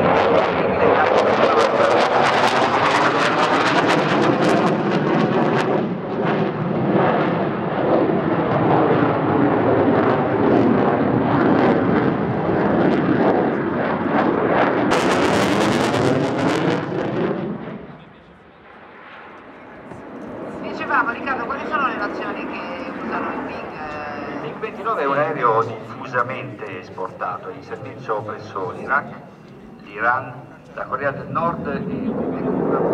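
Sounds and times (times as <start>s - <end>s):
loud crackling jet noise: 0.0s - 32.9s.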